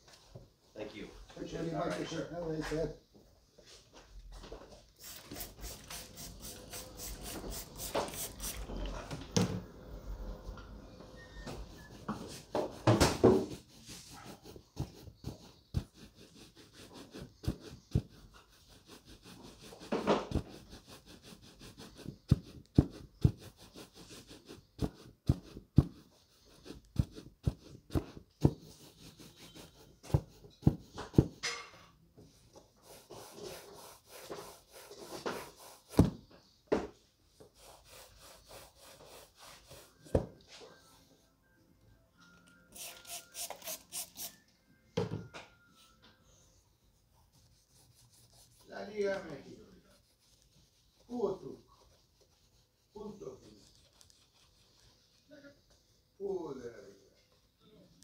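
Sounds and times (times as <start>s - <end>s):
cloth rubbing on leather: 32.8s - 36.0s, 37.6s - 40.1s, 47.2s - 49.2s, 49.8s - 55.1s.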